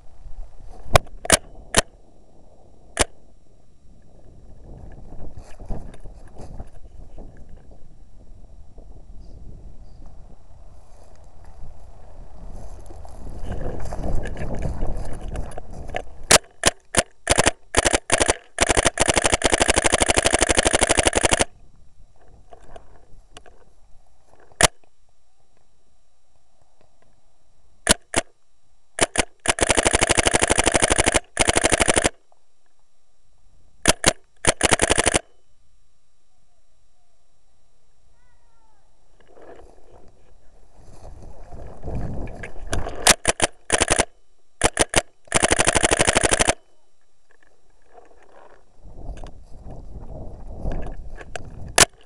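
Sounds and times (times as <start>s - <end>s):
paintball marker firing: 16.3s - 21.5s, 27.9s - 28.3s, 29.0s - 32.2s, 33.8s - 35.3s, 43.0s - 46.6s
rustling movement: 39.1s - 44.0s.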